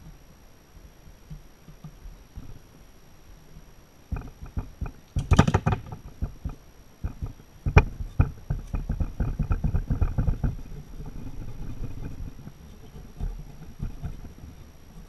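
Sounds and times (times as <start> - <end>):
metal parts clicking and knocking: 4.2 - 9.8.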